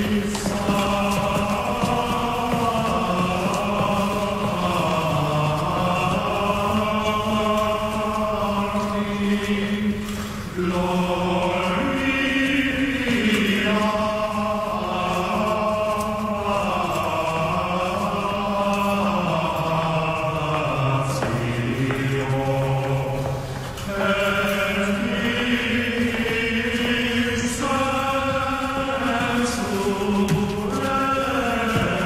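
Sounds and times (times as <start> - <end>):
men chanting plainchant: 0.0 - 32.0.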